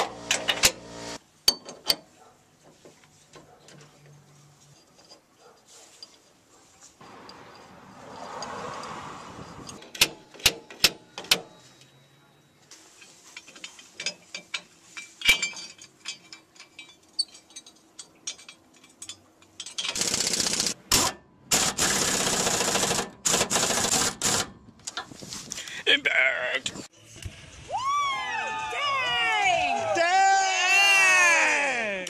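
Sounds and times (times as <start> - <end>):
metal clinks: 7.1 - 12.4, 13.0 - 20.0
nuts and bolts clicking: 9.6 - 11.9, 13.0 - 20.8
impact wrench running: 19.9 - 24.5.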